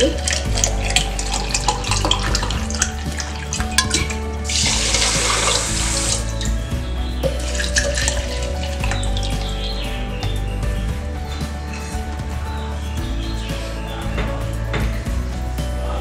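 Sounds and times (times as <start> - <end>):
water pouring into a pot: 0.0 - 6.6, 7.3 - 9.6
background music: 0.0 - 16.0.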